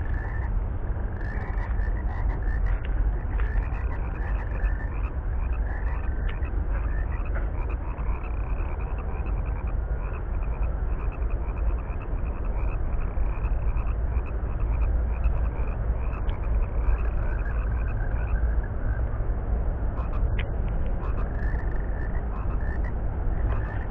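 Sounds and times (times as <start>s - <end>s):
frogs chorus: 0.0s - 23.9s
low rumble: 0.0s - 23.9s.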